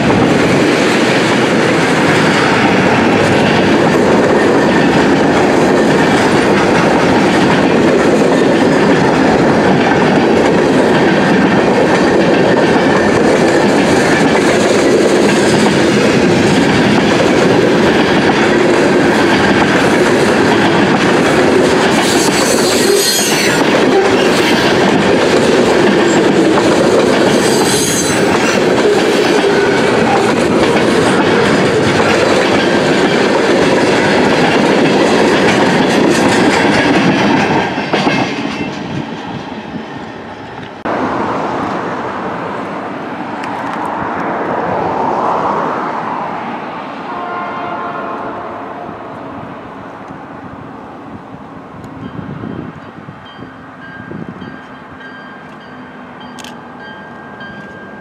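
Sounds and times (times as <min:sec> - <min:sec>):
wheels clacking over rail joints: 0:00.0 - 0:39.6
train wheels rumbling on rails: 0:00.0 - 0:58.0
high wheel squeals: 0:22.0 - 0:24.6, 0:27.2 - 0:28.7.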